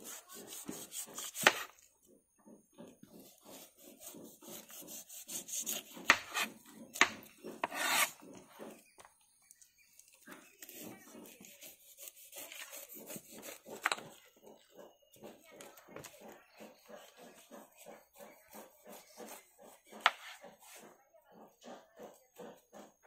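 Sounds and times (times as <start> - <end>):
rapid scraping strokes: 0.0 - 1.8, 3.1 - 6.6, 7.4 - 8.4.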